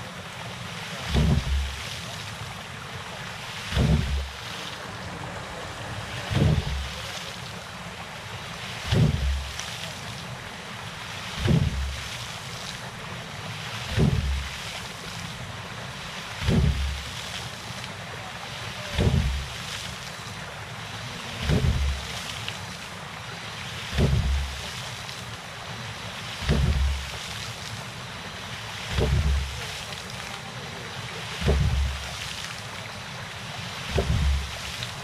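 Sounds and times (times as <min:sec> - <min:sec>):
water rushing: 0:00.0 - 0:35.0
valve slamming thump: 0:01.1 - 0:01.7, 0:03.7 - 0:04.3, 0:06.3 - 0:07.0, 0:08.9 - 0:09.5, 0:11.4 - 0:12.0, 0:13.9 - 0:14.5, 0:16.4 - 0:17.0, 0:19.0 - 0:19.5, 0:21.4 - 0:22.0, 0:24.0 - 0:24.5, 0:26.4 - 0:27.0, 0:28.9 - 0:29.6, 0:31.4 - 0:32.1, 0:33.9 - 0:34.6.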